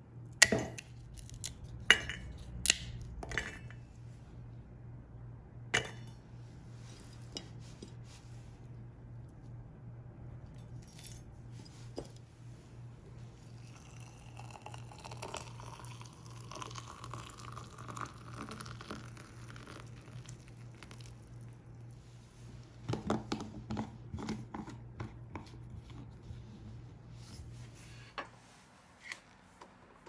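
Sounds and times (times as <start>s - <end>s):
water pouring into a metal jar: 13.6s - 21.2s.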